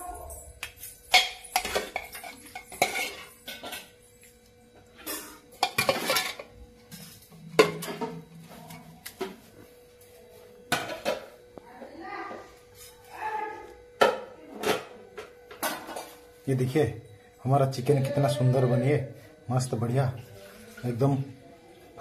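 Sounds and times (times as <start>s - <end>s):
metal ladle scraping steel cookware: 1.5s - 3.9s.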